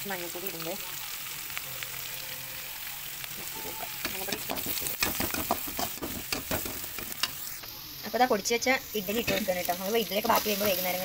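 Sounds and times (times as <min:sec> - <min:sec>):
onions sizzling in hot oil: 0:00.0 - 0:11.0
spatula scraping a metal pan: 0:03.6 - 0:07.5.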